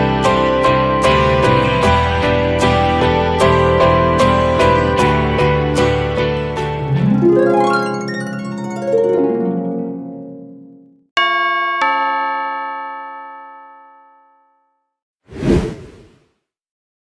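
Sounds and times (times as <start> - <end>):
harp-like plucked notes: 6.8 - 10.6.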